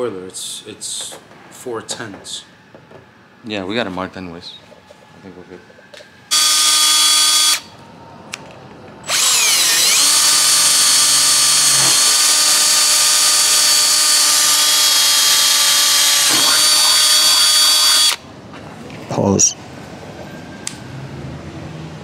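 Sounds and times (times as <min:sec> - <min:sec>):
cordless drill whining: 0:06.3 - 0:07.7, 0:09.1 - 0:18.2.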